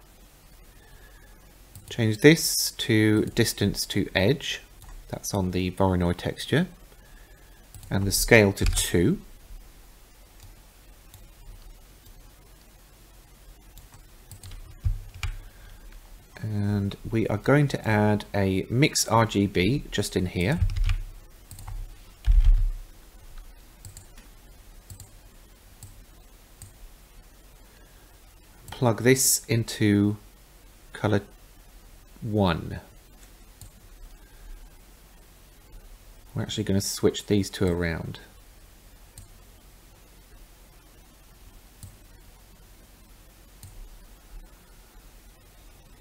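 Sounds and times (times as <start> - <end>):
steady low hum: 0.0 - 46.0
computer mouse clicks: 7.7 - 8.0, 13.7 - 15.4, 20.4 - 22.8, 23.4 - 25.2, 25.8 - 26.0, 41.8 - 42.0, 43.6 - 43.8.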